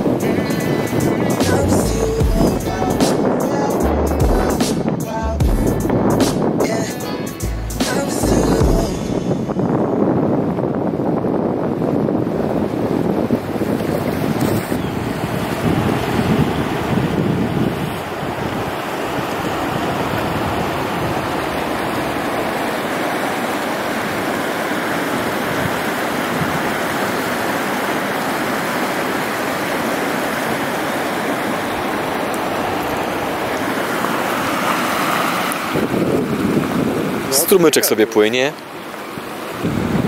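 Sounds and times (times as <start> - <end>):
stream running over gravel: 18.2 - 39.8.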